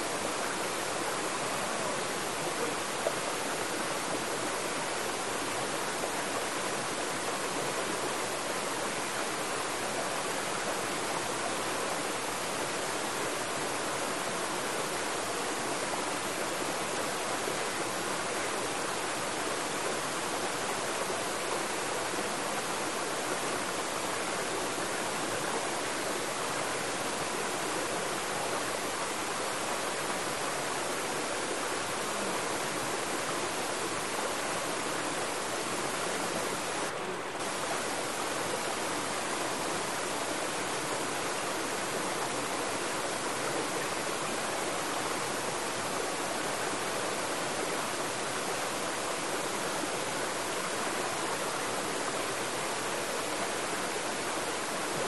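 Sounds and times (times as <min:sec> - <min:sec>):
stream rushing over boulders: 0:00.0 - 0:55.0.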